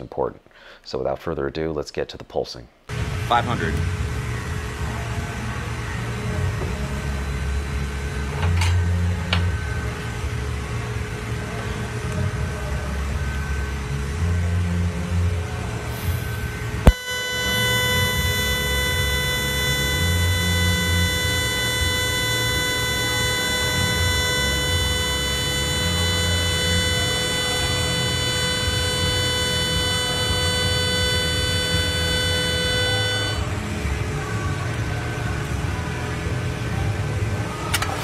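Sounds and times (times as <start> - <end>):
welding arc buzzing: 15.6 - 34.2.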